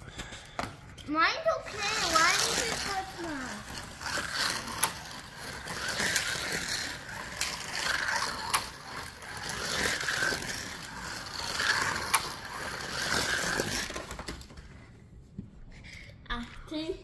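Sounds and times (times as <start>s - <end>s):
slot cars whirring on track: 1.7s - 14.2s.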